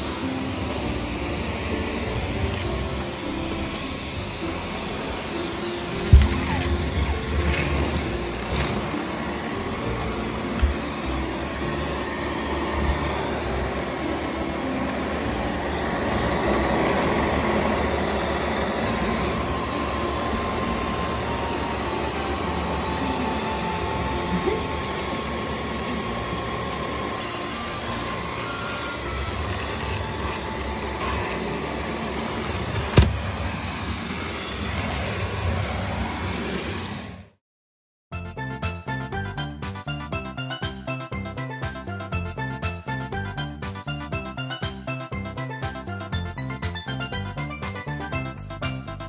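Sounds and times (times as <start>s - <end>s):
vacuum cleaner running: 0.0s - 37.4s.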